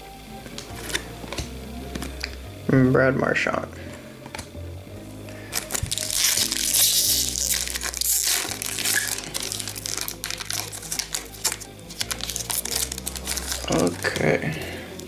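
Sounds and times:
foil wrapper crinkling: 0:05.4 - 0:15.0.

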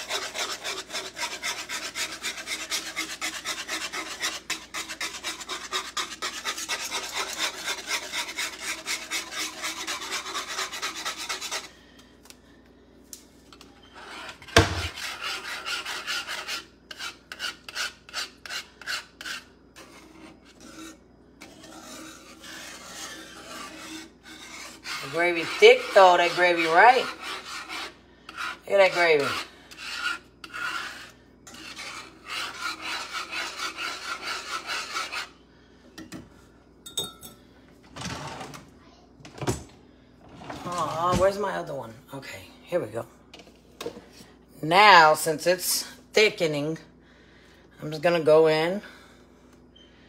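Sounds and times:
whisk scraping a skillet: 0:00.0 - 0:11.8, 0:13.5 - 0:35.4.

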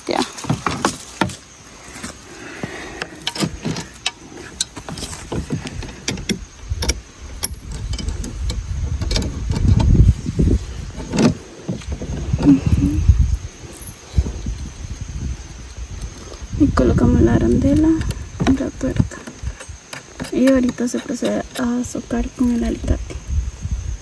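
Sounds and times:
low handling rumble: 0:01.5 - 0:24.0
metal parts clicking and rattling: 0:03.0 - 0:10.1, 0:10.8 - 0:14.8, 0:17.8 - 0:22.9.

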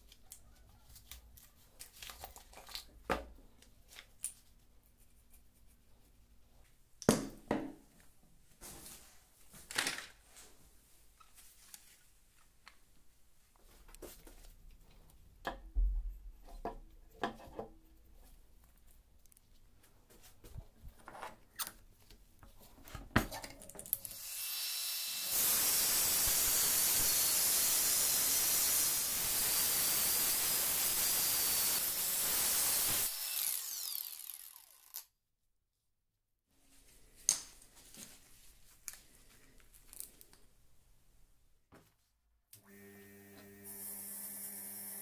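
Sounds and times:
angle grinder cutting metal: 0:24.0 - 0:35.0.

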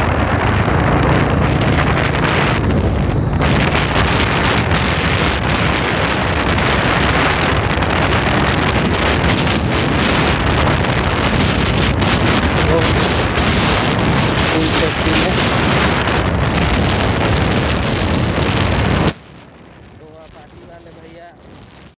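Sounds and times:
motorcycle engine running: 0:00.0 - 0:19.4
wind rushing over microphone: 0:00.0 - 0:21.9.

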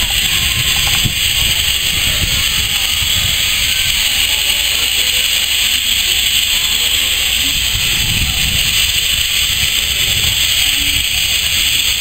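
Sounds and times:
locomotive low rumble: 0:00.0 - 0:12.0
steam hissing: 0:00.0 - 0:12.0.

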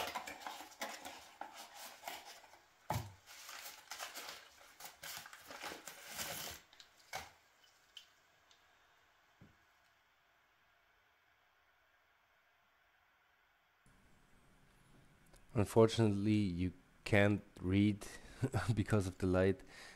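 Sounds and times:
paper crinkling and rustling: 0:00.0 - 0:07.3.

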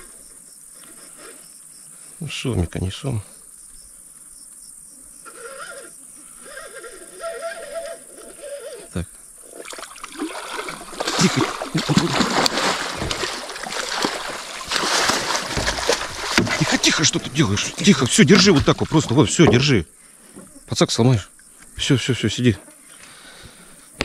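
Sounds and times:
high insect chirr: 0:00.0 - 0:24.0
insect buzzing: 0:00.0 - 0:24.0
fish splashing at the surface: 0:09.5 - 0:19.7.

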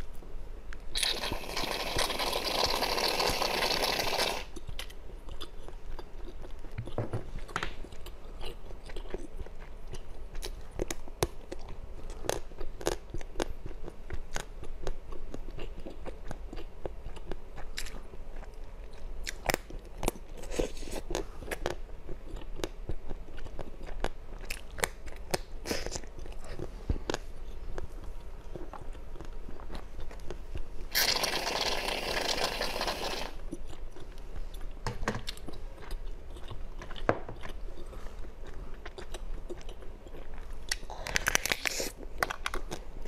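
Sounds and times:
chewing jelly candy: 0:00.9 - 0:43.0.

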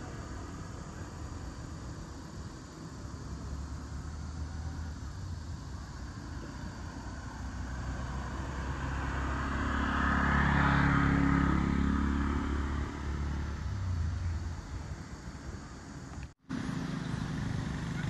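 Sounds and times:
vehicle engine passing by: 0:06.0 - 0:15.0, 0:16.5 - 0:18.0.

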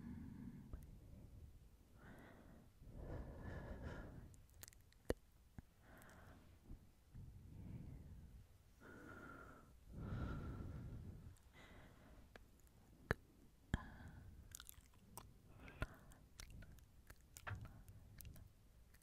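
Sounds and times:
wet mouth clicks: 0:04.3 - 0:05.7, 0:14.5 - 0:19.0.

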